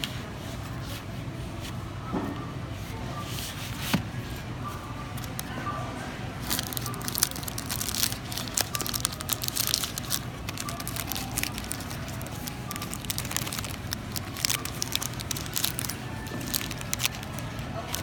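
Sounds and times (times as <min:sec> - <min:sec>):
candy wrappers crinkling: 0:05.2 - 0:05.6, 0:06.4 - 0:18.0.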